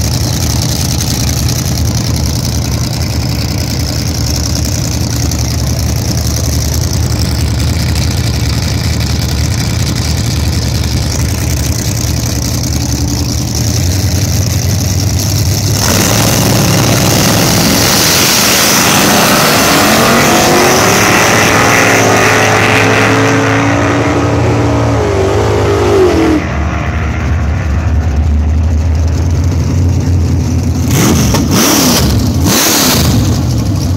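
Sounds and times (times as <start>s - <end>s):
drag car engine full throttle: 0.0s - 33.9s
second car racing: 15.6s - 33.8s.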